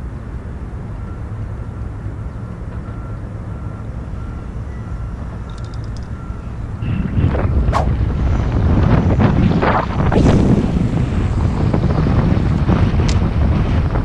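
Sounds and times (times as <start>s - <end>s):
wind rumbling on microphone: 6.1s - 14.0s.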